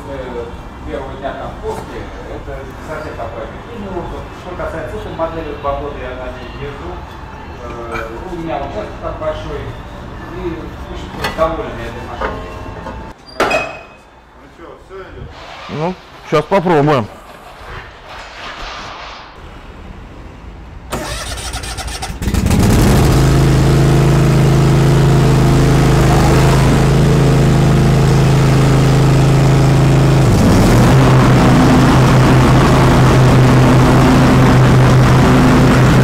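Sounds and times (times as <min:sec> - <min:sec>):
engine starter cranking: 0:20.9 - 0:22.7
lawn tractor engine running: 0:20.9 - 0:36.0.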